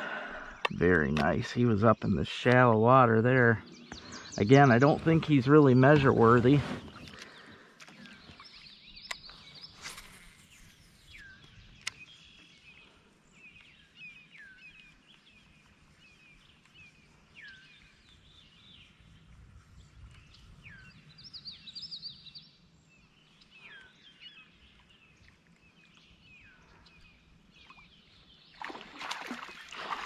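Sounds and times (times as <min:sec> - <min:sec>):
songbirds chirping: 0:00.0 - 0:30.0
water splashing: 0:28.6 - 0:30.0.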